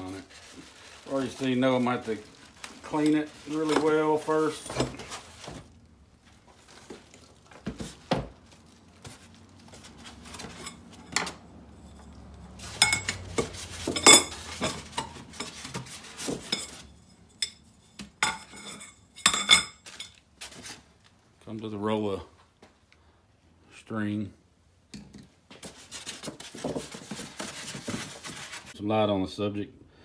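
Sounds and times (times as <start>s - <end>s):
plastic wrap rustling: 0.0s - 11.0s.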